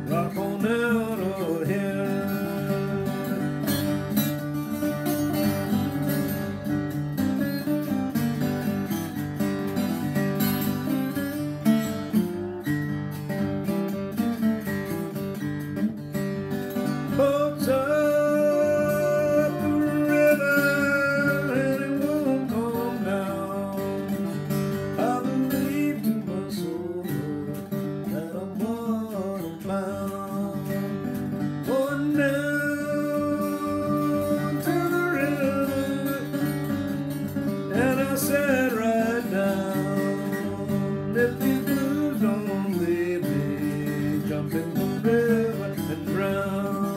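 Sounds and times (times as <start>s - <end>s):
man singing: 0.0s - 6.7s, 16.8s - 46.9s
acoustic guitar: 0.0s - 46.9s.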